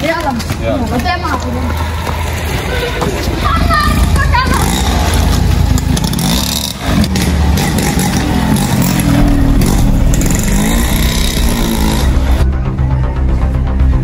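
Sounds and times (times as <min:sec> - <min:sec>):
moped engine revving: 0:03.6 - 0:12.5.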